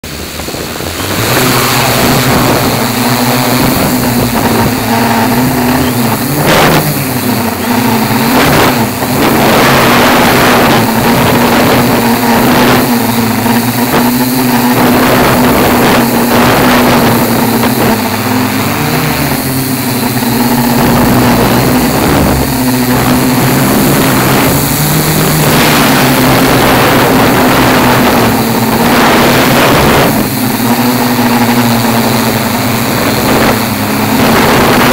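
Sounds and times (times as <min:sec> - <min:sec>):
drone propellers whirring: 0:00.0 - 0:34.9
wind on microphone: 0:00.0 - 0:34.9.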